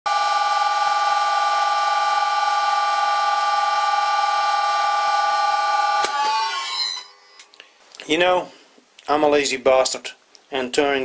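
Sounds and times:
electric motor whining: 0.1 - 7.2.

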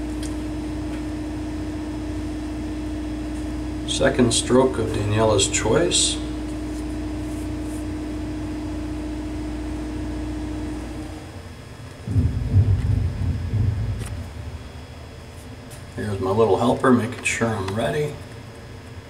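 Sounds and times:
mechanical room hum: 0.0 - 19.0
low rumble: 12.0 - 15.7.

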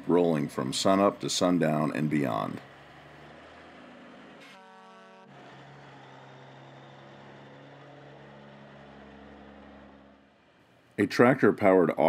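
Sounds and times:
diesel truck engine running: 0.0 - 11.5
truck horn blast: 3.4 - 10.3.

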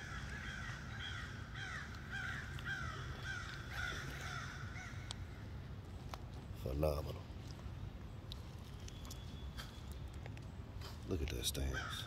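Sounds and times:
crows cawing: 0.0 - 5.6, 11.6 - 12.0.

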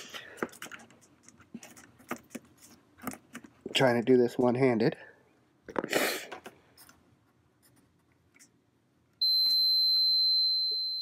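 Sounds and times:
multimeter continuity beep: 9.2 - 11.0.

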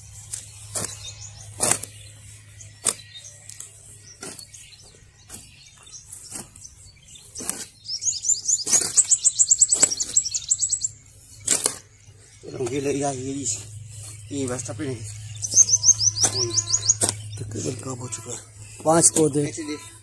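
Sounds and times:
hoe chopping into dry soil: 0.3 - 2.0, 2.8 - 3.1, 4.1 - 7.8, 8.5 - 10.4, 11.4 - 12.0, 16.2 - 17.4
bird fast high trill: 13.9 - 20.0.

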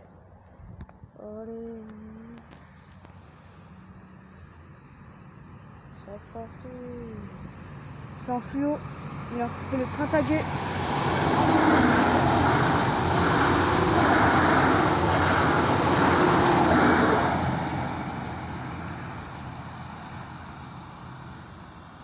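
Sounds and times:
train wheels rushing on rails: 9.2 - 19.4.

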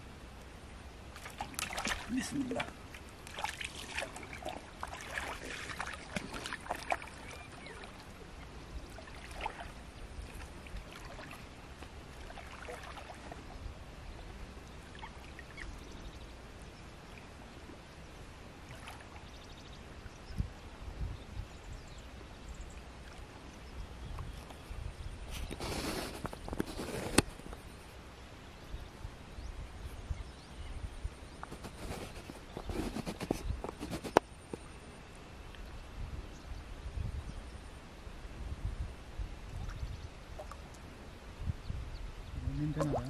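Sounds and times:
faint outdoor background: 0.0 - 43.0
water splashing while wading: 1.1 - 13.6, 18.6 - 19.6, 39.5 - 40.9, 42.7 - 43.0.

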